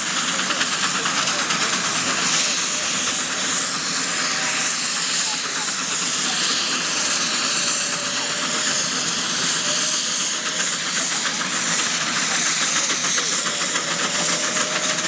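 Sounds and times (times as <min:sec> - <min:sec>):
hiss of steam: 0:00.0 - 0:15.0
rapid steam exhaust beats: 0:00.0 - 0:15.0.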